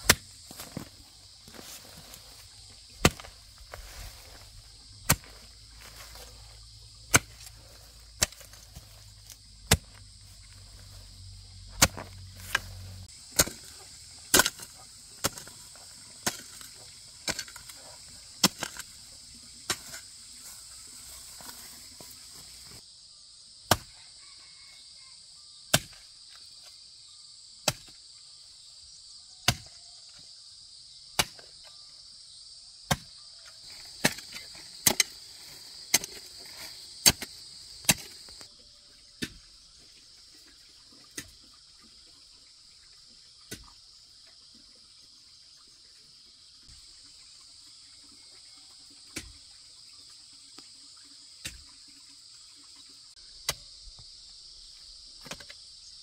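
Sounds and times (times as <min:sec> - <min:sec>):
insects trilling: 0:00.0 - 0:56.0.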